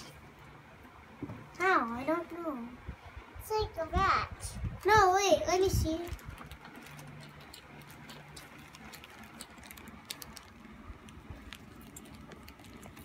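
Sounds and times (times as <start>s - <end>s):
plastic wrappers rustling: 5.6s - 13.0s.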